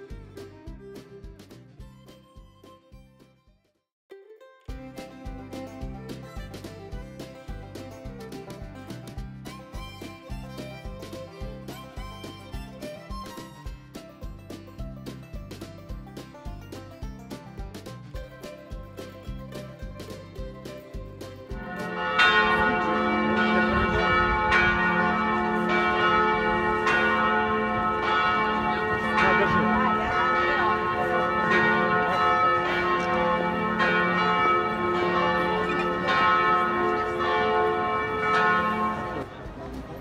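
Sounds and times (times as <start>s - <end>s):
church bells ringing: 21.6s - 39.3s.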